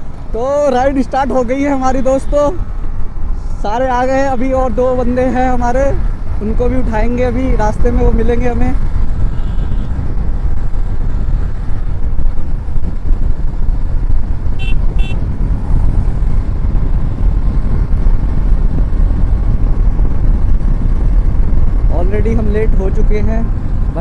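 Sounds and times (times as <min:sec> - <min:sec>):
motorcycle engine and wind rumble: 0:00.0 - 0:24.0
horn beeps: 0:14.6 - 0:15.2.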